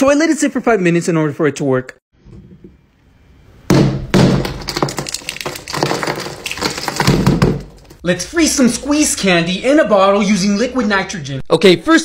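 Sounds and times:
frozen candy shell cracking: 0:04.4 - 0:08.0.

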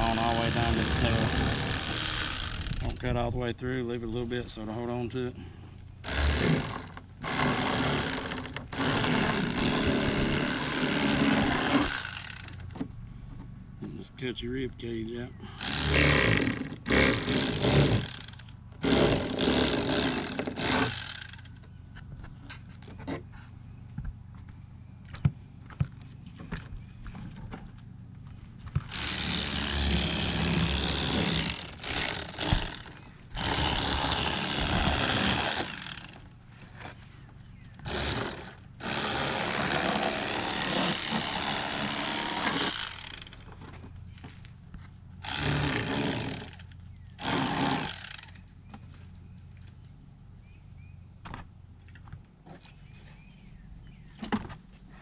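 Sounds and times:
electric fillet knife running: 0:33.4 - 0:36.0.

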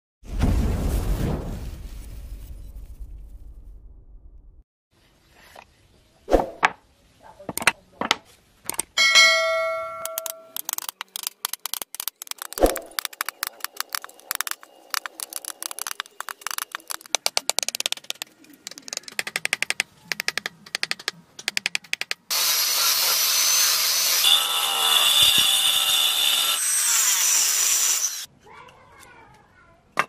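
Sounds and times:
chisels cutting wood: 0:10.5 - 0:28.3
angle grinder whining on wood: 0:22.3 - 0:28.3.

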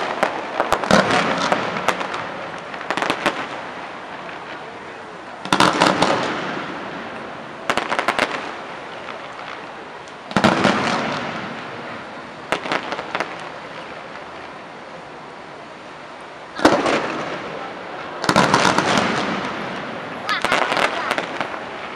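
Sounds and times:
fireworks shells bursting: 0:18.2 - 0:21.9.

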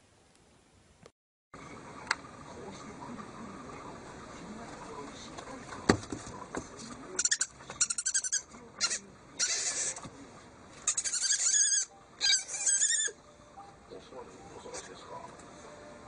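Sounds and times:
owl chittering calls: 0:07.2 - 0:10.0, 0:10.9 - 0:13.2.

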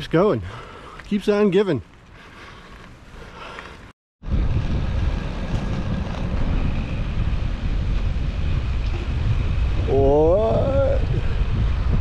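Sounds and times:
wind buffeting microphone: 0:04.2 - 0:12.0.

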